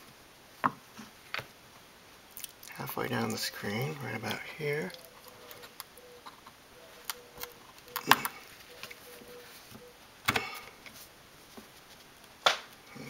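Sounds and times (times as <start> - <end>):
faint ticks and scrapes: 2.4 - 9.9, 10.8 - 12.3.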